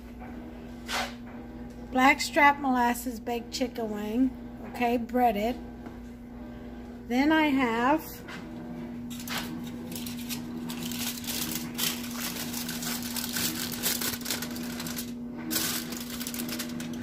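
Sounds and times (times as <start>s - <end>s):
steady low hum: 0.0s - 17.0s
aluminium foil crinkling: 9.1s - 17.0s.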